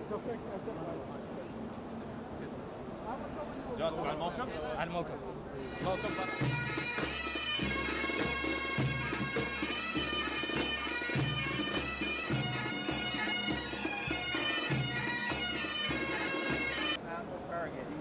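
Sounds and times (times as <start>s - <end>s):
bagpipes playing a tune: 5.6s - 17.0s
drum beating: 5.7s - 17.0s.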